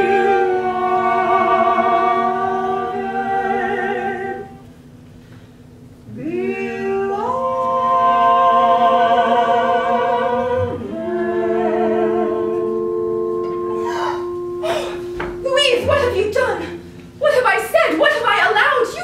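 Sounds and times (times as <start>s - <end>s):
soprano and tenor operatic duet: 0.0s - 4.9s, 6.0s - 19.0s
sustained accompanying chord: 8.8s - 19.0s.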